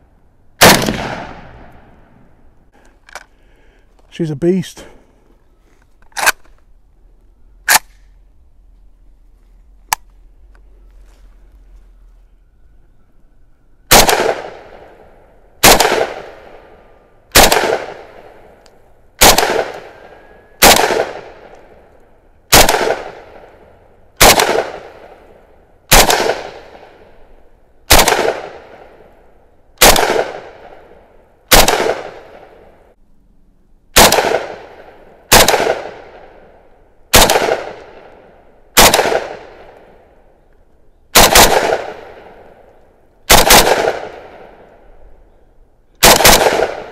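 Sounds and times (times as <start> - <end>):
rifle shots: 0.6 - 2.1, 13.9 - 18.6, 19.2 - 21.8, 22.5 - 23.6, 24.2 - 25.3, 25.9 - 27.2, 27.9 - 29.1, 29.8 - 32.8, 33.9 - 40.0, 41.1 - 42.6, 43.3 - 44.7, 46.0 - 46.9.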